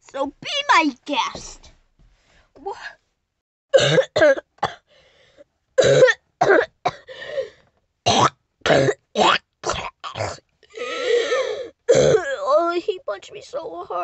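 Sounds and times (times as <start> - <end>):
person coughing and grunting: 3.7 - 4.9, 5.8 - 7.1, 8.1 - 12.4.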